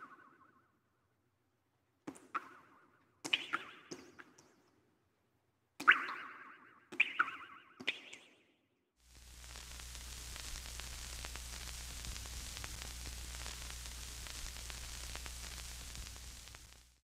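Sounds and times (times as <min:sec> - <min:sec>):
crackling static hiss: 0:09.0 - 0:17.0
low electrical hum: 0:09.1 - 0:16.9.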